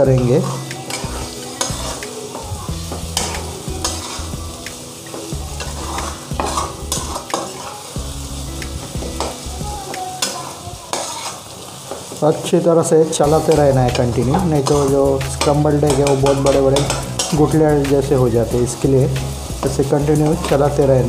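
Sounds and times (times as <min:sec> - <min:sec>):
frying sizzle: 0:00.0 - 0:21.0
spatula scraping a pan: 0:00.2 - 0:04.4, 0:05.1 - 0:08.0, 0:10.2 - 0:12.2, 0:13.0 - 0:17.6.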